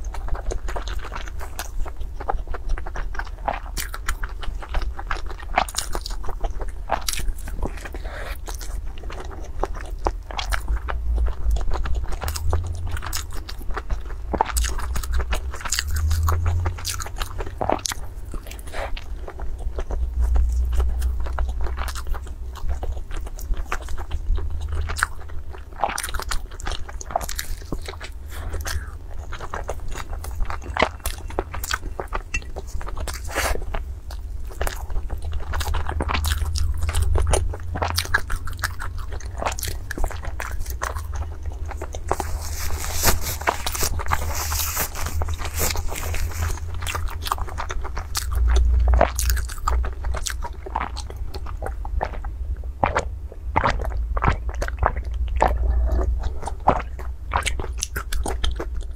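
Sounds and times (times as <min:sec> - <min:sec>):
chewing crispy food: 0:00.0 - 0:58.9
deep low rumble: 0:00.0 - 0:58.9.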